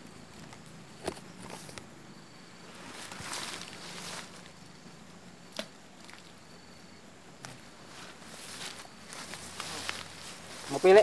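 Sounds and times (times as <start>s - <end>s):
rustling of plants and fishing rod: 0.2s - 6.7s, 7.3s - 11.0s.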